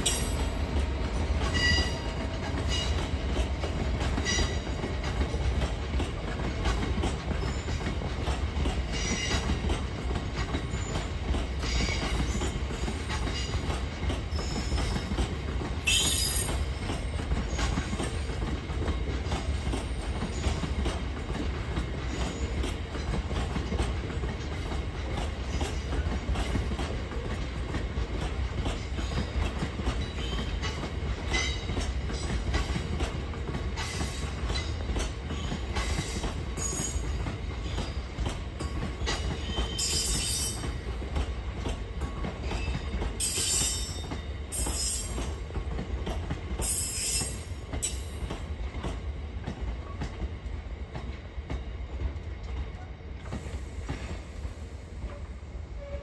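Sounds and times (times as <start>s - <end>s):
train wheel clicks: 0.0s - 50.3s.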